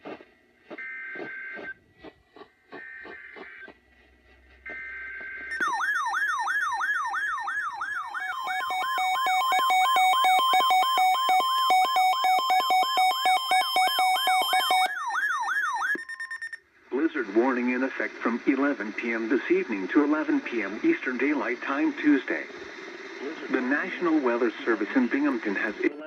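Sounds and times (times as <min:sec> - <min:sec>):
steady beeping tones: 0:04.7 - 0:15.1.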